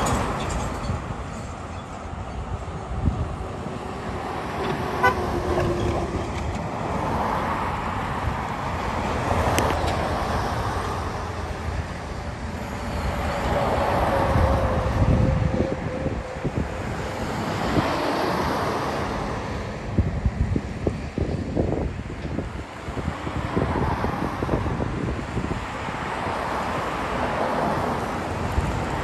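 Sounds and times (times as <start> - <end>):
traffic rumble: 0.0 - 29.0.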